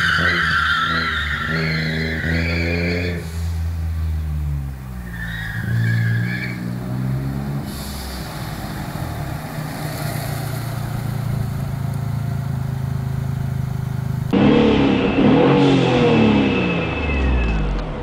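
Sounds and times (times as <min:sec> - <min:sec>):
car engine running: 0:07.6 - 0:17.8
brief high squeal: 0:16.3 - 0:17.7.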